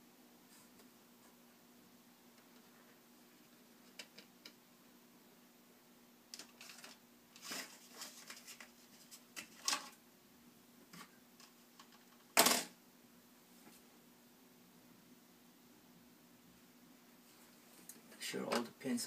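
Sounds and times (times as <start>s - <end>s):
hands handling computer parts: 6.3s - 10.0s.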